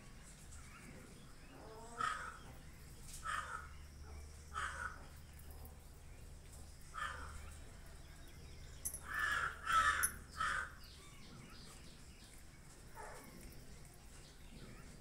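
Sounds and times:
crow cawing: 2.0 - 2.4, 3.2 - 3.7, 4.6 - 5.0, 9.1 - 10.8.

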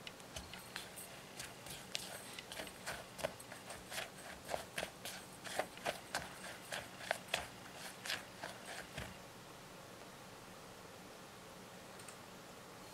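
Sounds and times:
spoon scraping glass bowl: 0.4 - 9.1.

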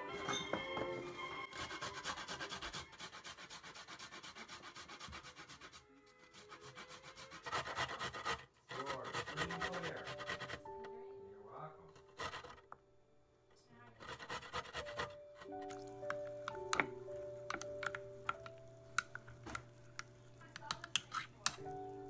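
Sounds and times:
wooden utensil scraping glass jar: 20.9 - 21.6.

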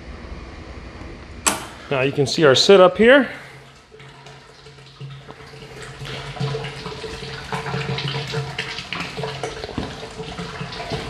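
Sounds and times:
liquid splashing down drain: 3.3 - 11.0.

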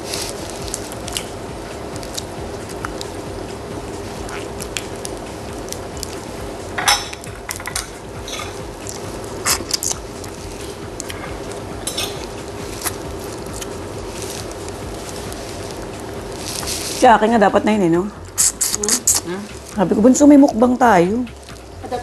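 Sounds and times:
steady low hum: 0.0 - 22.0
shrimp shells cracking: 1.9 - 3.2, 7.1 - 17.0.

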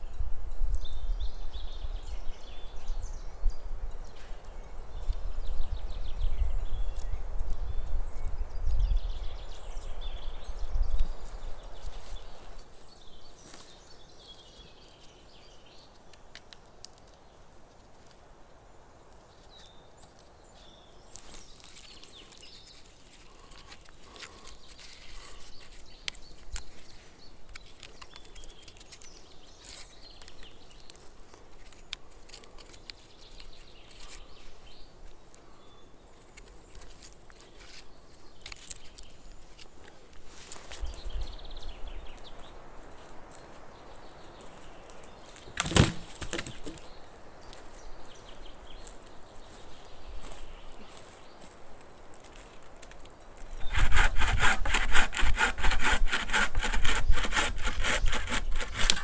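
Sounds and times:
light clicks and crackles: 15.8 - 18.2, 21.1 - 34.2, 36.1 - 40.8, 50.3 - 53.6
rustling: 21.1 - 35.5, 36.1 - 59.0.

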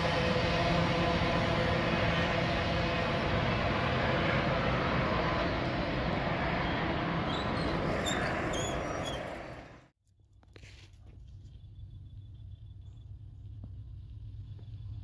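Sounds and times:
train wheels rumbling on rails: 0.0 - 9.9.

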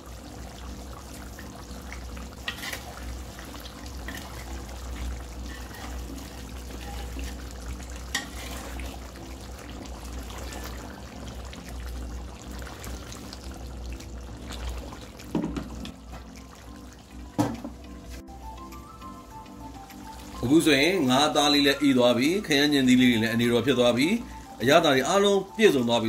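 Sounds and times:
curry bubbling and crackling: 0.0 - 25.8
knock: 15.3 - 15.8, 17.4 - 17.7.

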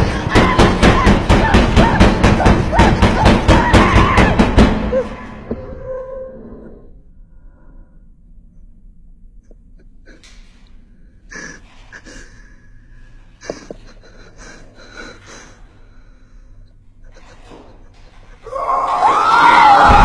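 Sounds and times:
low hum: 4.8 - 11.6.

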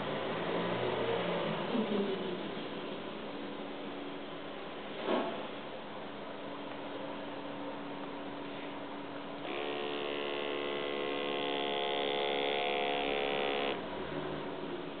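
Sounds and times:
small electric motor whirring: 9.4 - 13.8.

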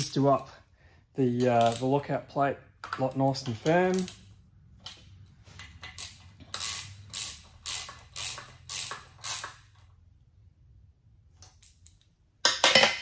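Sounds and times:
socket ratchet ratcheting: 3.6 - 9.9.

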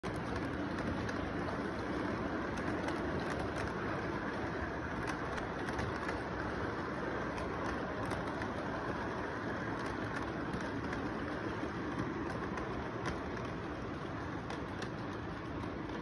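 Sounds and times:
model train rolling rumble: 0.0 - 16.0
steady background noise: 0.0 - 16.0
wheels clicking over rail joints: 0.0 - 16.0.

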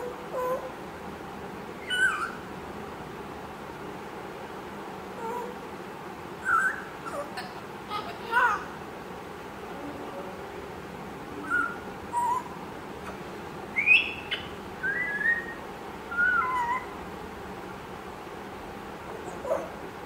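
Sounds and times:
parrot whistles and chirps: 1.8 - 2.4, 6.4 - 7.2, 11.4 - 12.6, 13.8 - 17.0.

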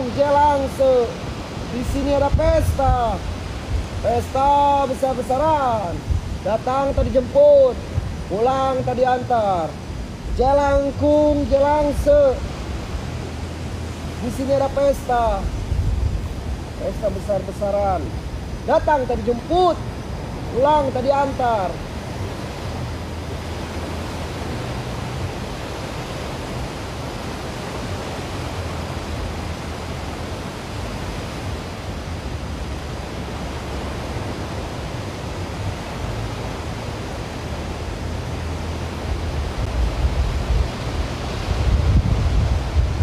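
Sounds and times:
ocean surf: 0.0 - 43.0
wind rumbling on microphone: 0.0 - 43.0.

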